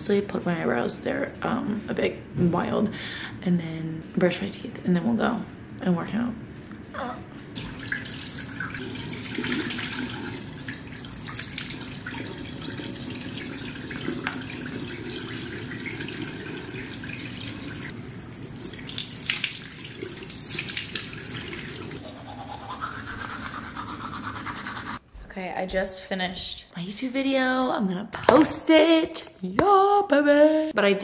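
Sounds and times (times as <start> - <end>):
water dripping into basin: 7.6 - 21.7
sink tap running: 7.6 - 22.0
water splashing onto face: 18.6 - 21.9.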